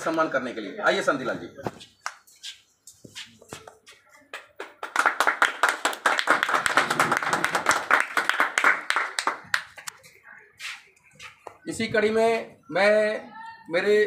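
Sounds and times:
people clapping: 4.2 - 10.0.

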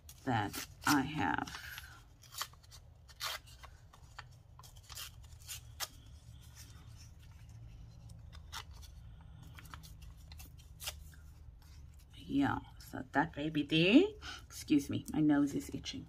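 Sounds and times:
paper crinkling and rustling: 0.0 - 12.2.

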